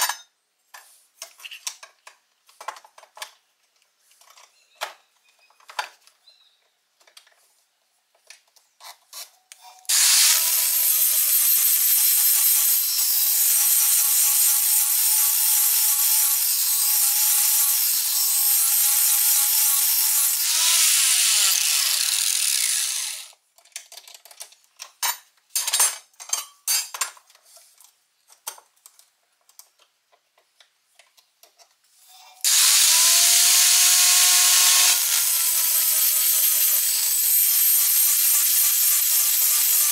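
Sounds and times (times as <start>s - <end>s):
clicks and clanks of handling metal: 0.0s - 6.2s, 23.5s - 32.4s
angle grinder grinding steel: 9.7s - 23.3s, 32.3s - 39.9s.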